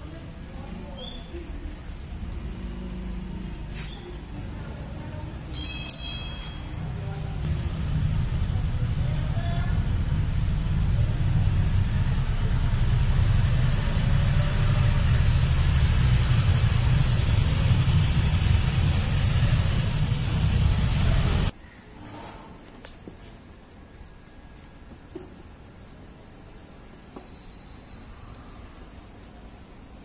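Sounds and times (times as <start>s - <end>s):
loud low rumble with hiss: 7.3s - 21.5s.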